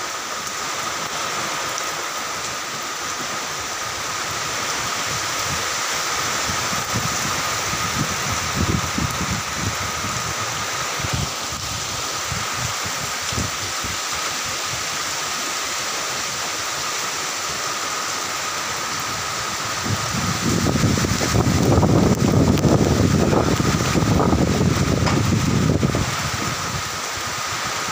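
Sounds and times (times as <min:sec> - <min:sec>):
rain falling through leaves: 0:00.0 - 0:27.9
wind buffeting microphone: 0:03.5 - 0:15.0, 0:19.0 - 0:27.9.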